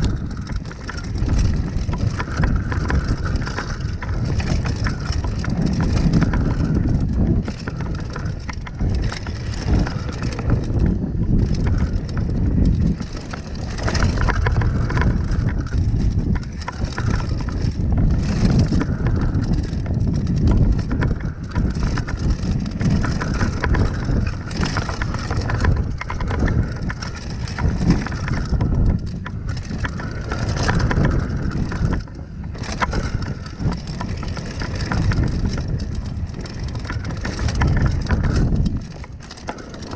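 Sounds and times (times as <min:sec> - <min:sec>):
bike rattling over bumps: 0:00.0 - 0:39.9
wind on microphone: 0:00.0 - 0:39.9.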